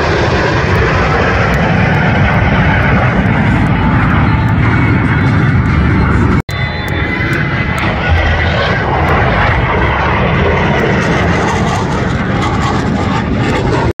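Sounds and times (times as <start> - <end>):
jet flying past: 0.0 - 14.0.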